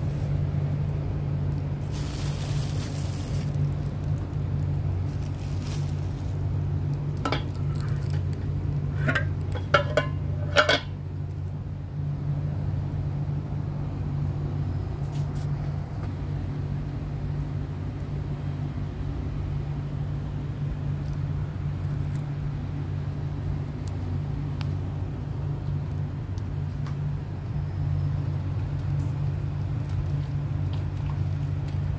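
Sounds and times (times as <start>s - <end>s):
low mechanical hum: 0.0s - 31.9s
kitchen items clinking: 8.9s - 11.0s.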